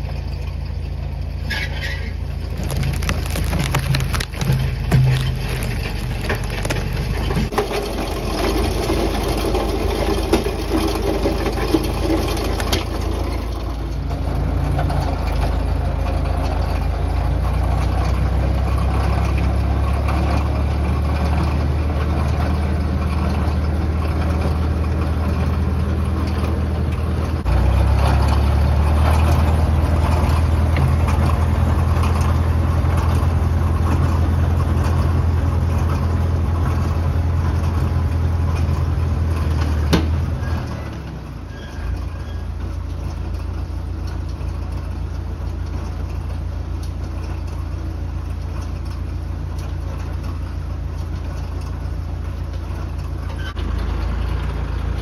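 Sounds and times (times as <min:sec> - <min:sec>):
tractor engine running: 0:00.0 - 0:55.0
log crackling through brush: 0:02.4 - 0:16.4.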